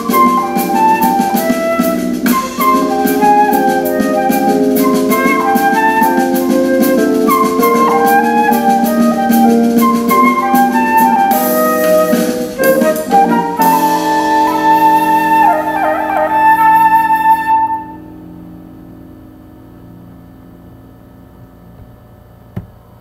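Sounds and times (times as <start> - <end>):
faint hiss: 0.0 - 17.2
flute melody: 0.0 - 18.5
sustained accompaniment: 0.0 - 22.2.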